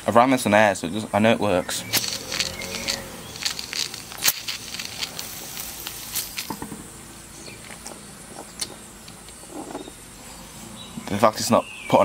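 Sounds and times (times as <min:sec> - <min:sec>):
faint steam hiss: 0:01.8 - 0:07.9.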